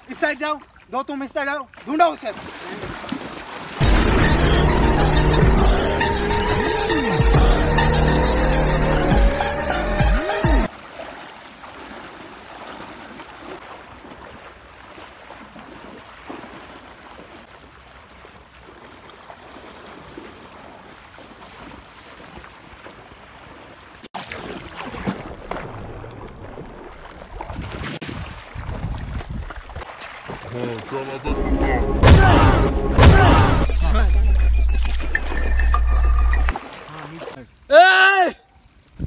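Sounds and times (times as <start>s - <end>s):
water splashing as people wade: 0.0s - 5.6s, 10.5s - 37.8s
background music: 3.8s - 10.7s, 31.3s - 36.3s.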